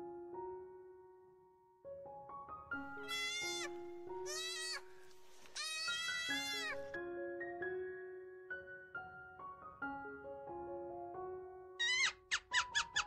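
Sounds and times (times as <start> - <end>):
piano music: 0.0 - 13.0
animal bleating: 3.0 - 4.9, 5.5 - 7.0.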